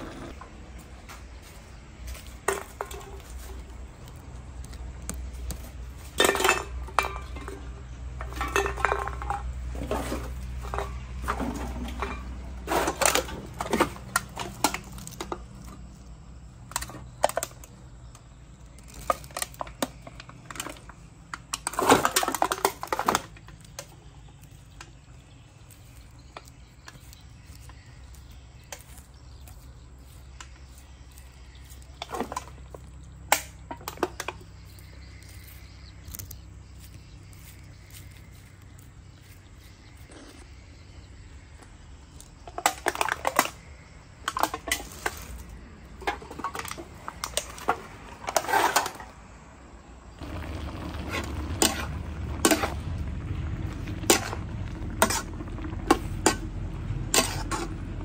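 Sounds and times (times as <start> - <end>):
low steady rumble: 45.0 - 58.0.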